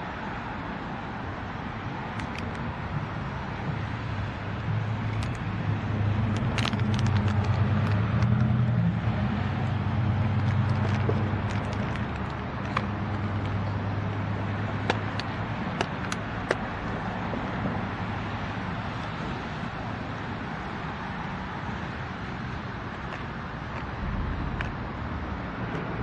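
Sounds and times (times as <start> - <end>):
road traffic noise: 0.0 - 26.0
diesel locomotive rumble: 1.3 - 26.0
hum: 23.8 - 26.0.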